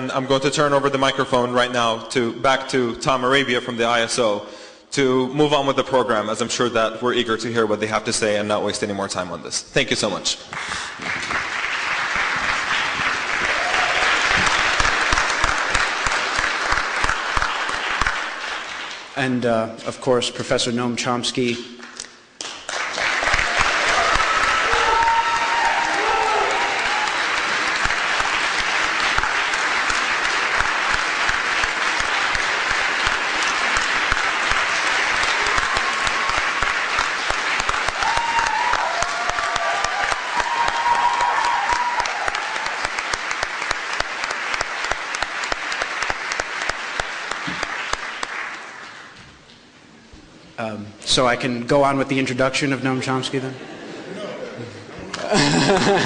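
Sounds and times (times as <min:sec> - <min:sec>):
audience applauding: 0:10.5 - 0:19.2, 0:21.8 - 0:49.2.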